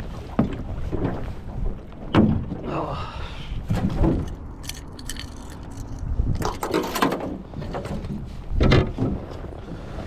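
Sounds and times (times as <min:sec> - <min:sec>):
wind and water against boat: 0:00.0 - 0:10.0
fishing hooks clicking and rattling: 0:04.2 - 0:07.0.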